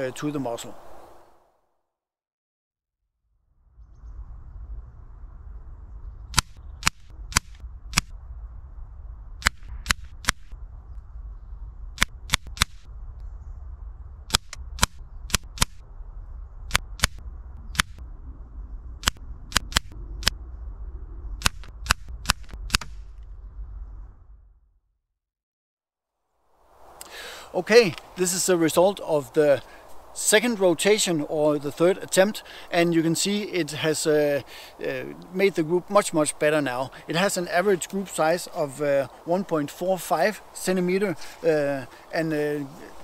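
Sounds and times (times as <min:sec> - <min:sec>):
steady low rumble: 0:03.2 - 0:25.0.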